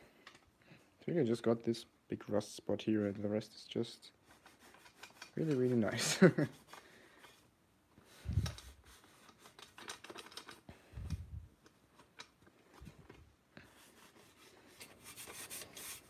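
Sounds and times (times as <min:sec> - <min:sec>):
small scrapes and clicks: 0:04.2 - 0:05.9, 0:08.2 - 0:16.0
cloth rubbing metal helmet: 0:04.2 - 0:10.6, 0:11.2 - 0:16.0.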